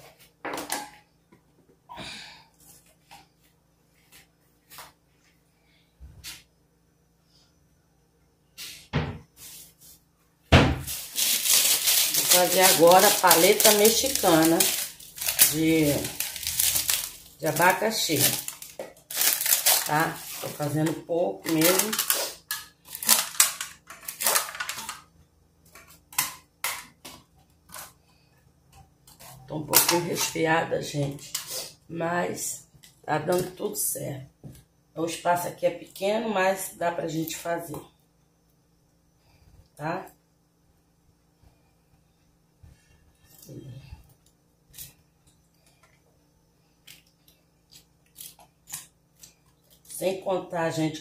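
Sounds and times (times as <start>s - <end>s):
plastic cups clacking and crinkling: 10.9s - 25.1s.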